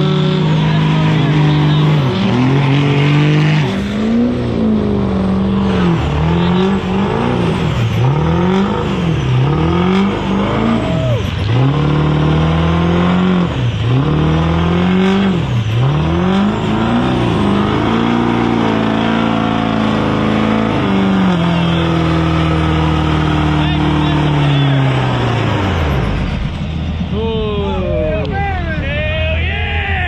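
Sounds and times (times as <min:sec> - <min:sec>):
truck engine revving: 0:00.0 - 0:30.0.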